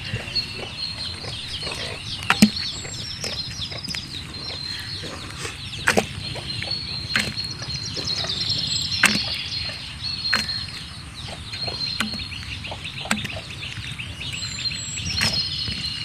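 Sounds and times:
small birds chirping: 0.0 - 16.0
whistled bird notes: 0.0 - 16.0
sharp clicks or knocks: 2.2 - 4.0, 7.1 - 7.5, 9.0 - 9.4, 10.3 - 10.7, 11.9 - 12.4, 13.0 - 13.4.

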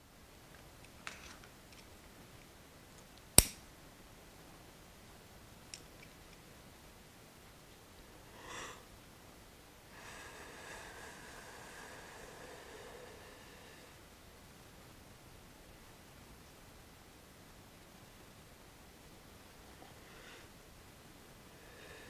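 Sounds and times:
loud sharp click: 3.4 - 3.6.

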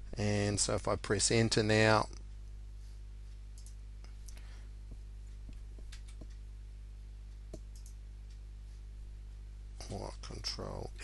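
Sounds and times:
keyboard clicks: 3.6 - 3.8, 7.5 - 8.0.

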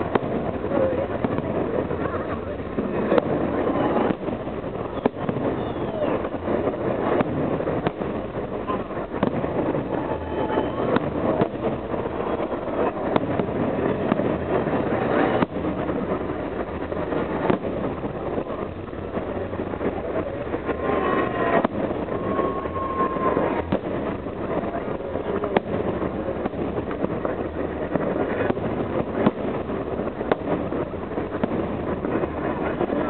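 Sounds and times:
continuous rumble: 0.0 - 33.0
firework bangs: 0.0 - 33.0
wind noise on microphone: 0.0 - 33.0.

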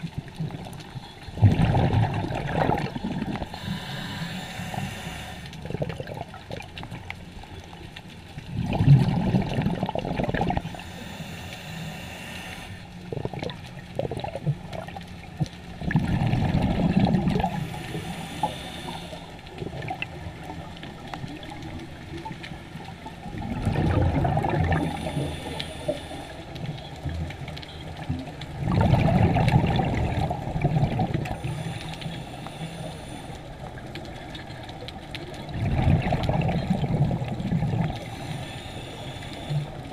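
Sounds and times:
underwater water noise: 0.0 - 39.9
diver exhaling bubbles underwater: 1.4 - 3.8, 5.6 - 6.7, 8.5 - 10.7, 13.1 - 15.0, 15.8 - 18.6, 23.3 - 25.3, 28.6 - 31.5, 35.5 - 38.1.

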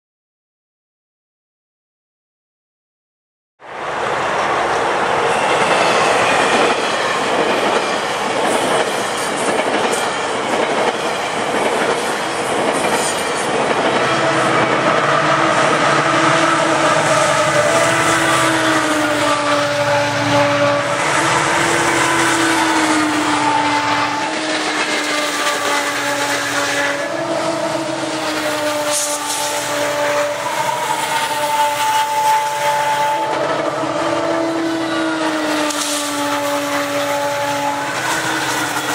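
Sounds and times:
train rumble: 3.7 - 38.9
locomotive horn drone: 13.3 - 38.9.

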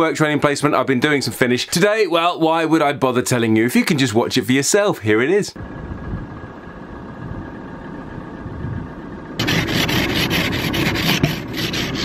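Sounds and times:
ice scraper scraping frost: 9.4 - 12.0.

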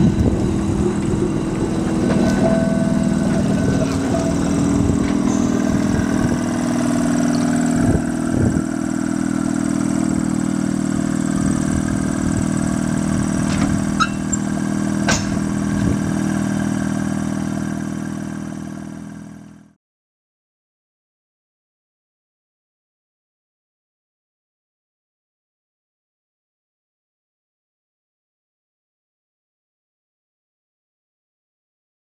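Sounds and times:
tram mechanical hum: 0.0 - 19.6.

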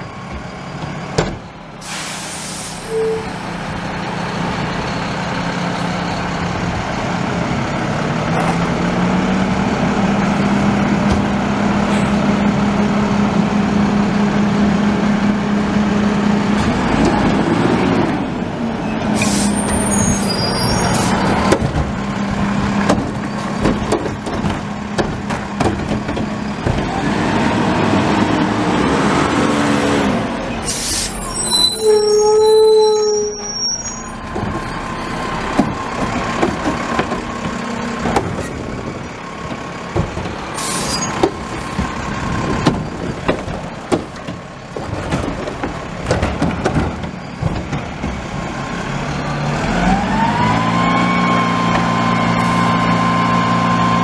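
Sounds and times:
garbage truck diesel engine: 0.0 - 54.0
air brake hisses: 1.8 - 3.4, 19.2 - 21.1, 30.6 - 31.4, 40.6 - 41.1.

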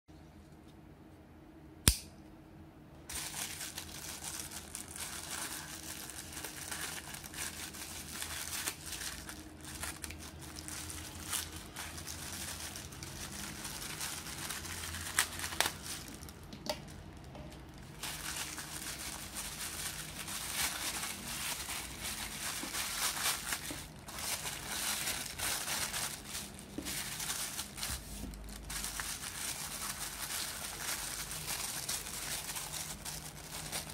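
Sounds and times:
sharp click: 1.8 - 2.2
plastic bag crinkling: 3.1 - 33.9.

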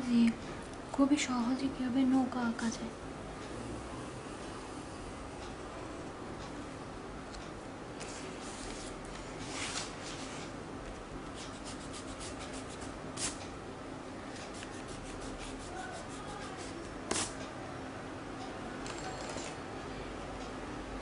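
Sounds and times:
eraser rubbing on paper: 11.4 - 13.4, 14.5 - 17.4.

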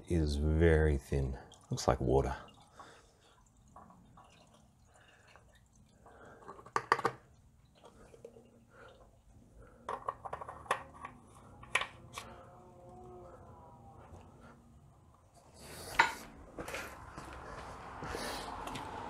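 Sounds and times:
fluid pouring and dripping: 1.1 - 9.8.

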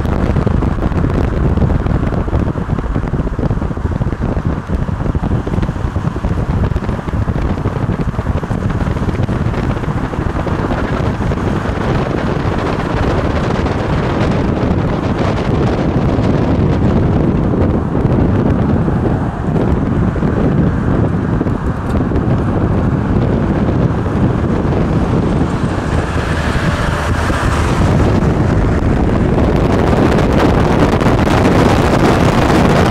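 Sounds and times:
road noise: 0.0 - 32.9
wind buffeting microphone: 0.0 - 32.9.

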